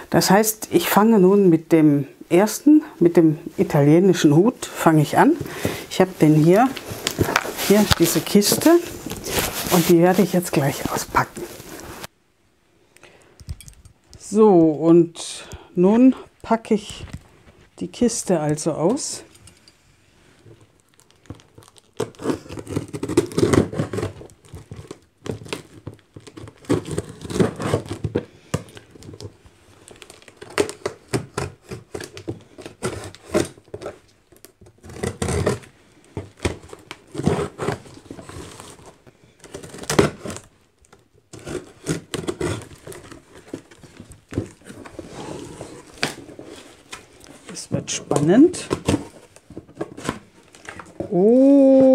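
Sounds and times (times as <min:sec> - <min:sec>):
cardboard flaps scraping: 0:05.2 - 0:12.1, 0:41.4 - 0:51.9
scissors cutting packing tape: 0:21.4 - 0:28.2, 0:41.4 - 0:43.6
tape tearing off cardboard box: 0:21.8 - 0:28.2, 0:34.7 - 0:35.7, 0:36.4 - 0:40.5, 0:41.3 - 0:47.0.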